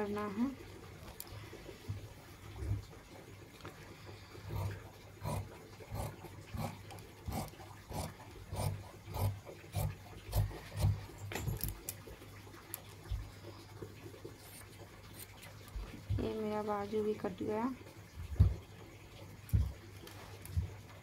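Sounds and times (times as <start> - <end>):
scissors snipping fabric: 4.5 - 11.0.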